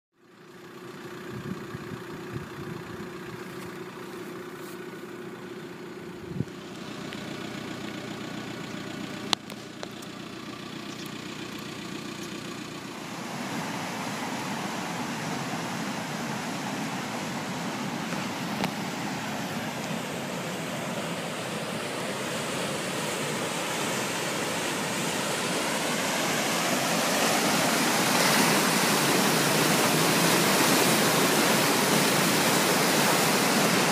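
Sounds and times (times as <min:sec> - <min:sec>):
rushing flood water: 0:12.8 - 0:33.9.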